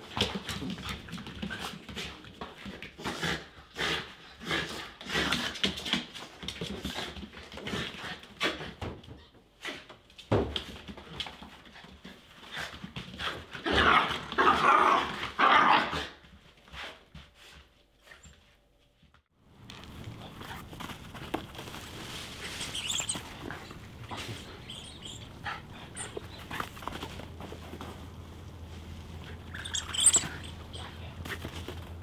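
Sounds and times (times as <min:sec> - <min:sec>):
dogs barking and whining: 0:13.6 - 0:16.2, 0:22.3 - 0:27.2, 0:29.2 - 0:31.4.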